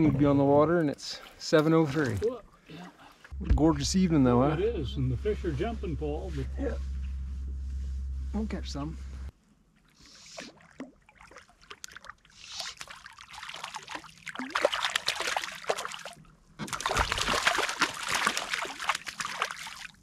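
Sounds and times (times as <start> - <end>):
fish thrashing and splashing: 10.4 - 20.0.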